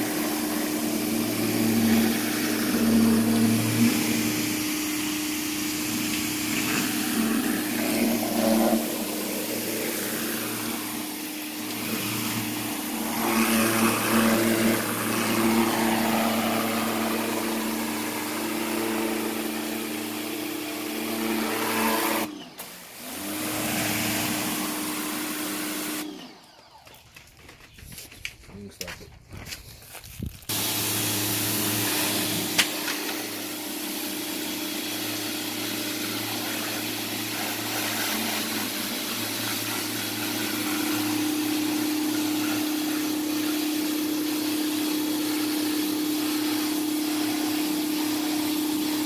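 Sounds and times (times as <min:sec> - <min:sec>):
pressure washer engine running: 0:00.0 - 0:27.0, 0:30.5 - 0:49.0
hiss of water spray: 0:30.5 - 0:49.0.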